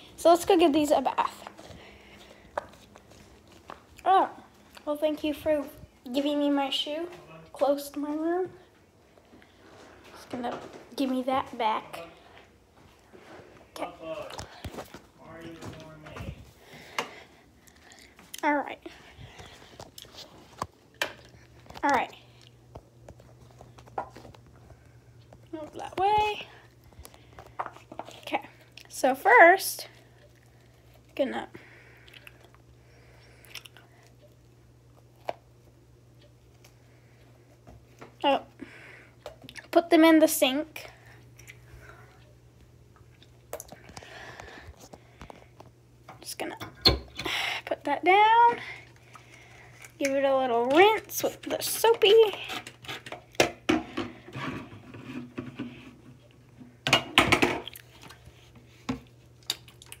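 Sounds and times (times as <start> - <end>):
steady low hum: 0.0 - 60.0.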